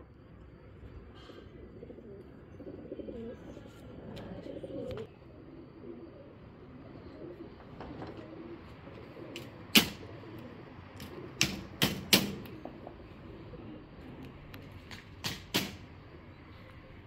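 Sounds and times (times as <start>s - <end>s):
pigeons cooing: 0.0s - 14.7s
sharp knocks: 11.4s - 12.5s, 15.2s - 15.8s.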